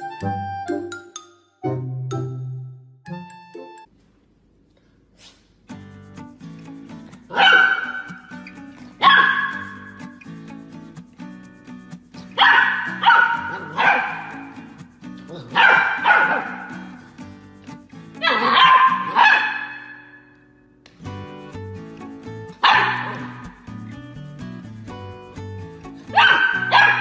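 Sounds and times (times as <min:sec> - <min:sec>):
background music: 0:00.0 - 0:03.9, 0:05.7 - 0:27.0
puppy barking: 0:07.3 - 0:08.4, 0:09.0 - 0:10.0, 0:12.3 - 0:14.7, 0:15.3 - 0:17.0, 0:18.2 - 0:20.3, 0:22.6 - 0:23.6, 0:26.1 - 0:27.0.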